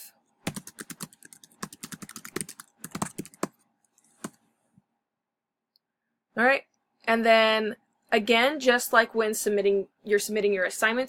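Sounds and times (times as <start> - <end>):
computer keyboard typing: 0.4 - 4.4.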